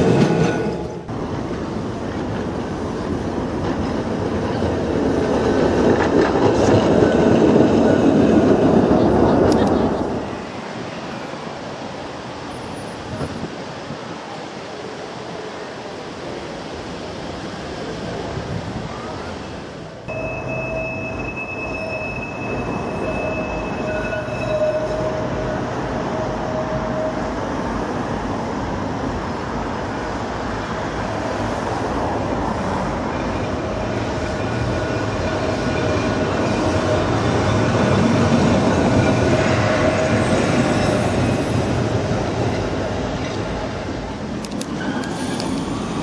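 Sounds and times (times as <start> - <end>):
tram rumbling past: 0.0 - 46.0
wind-like noise: 0.0 - 46.0
tram wheel squeals: 20.1 - 28.1, 33.0 - 43.4, 44.6 - 46.0.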